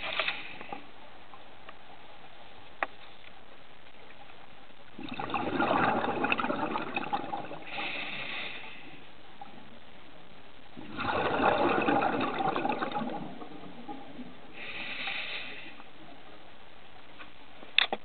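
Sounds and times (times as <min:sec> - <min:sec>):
underwater bubbling: 0:03.5 - 0:17.1.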